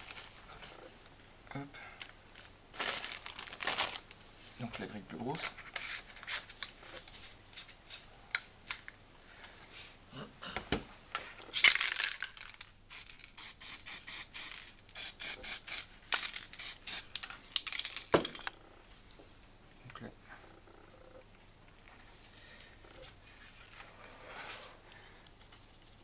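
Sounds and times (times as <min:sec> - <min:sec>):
spray bottle spritzing: 0:12.9 - 0:17.2.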